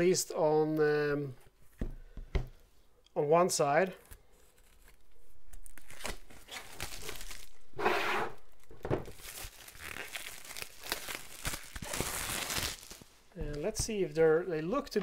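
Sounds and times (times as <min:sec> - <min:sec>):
plastic wrapping crinkling and tearing: 0:04.0 - 0:07.7, 0:08.4 - 0:13.3.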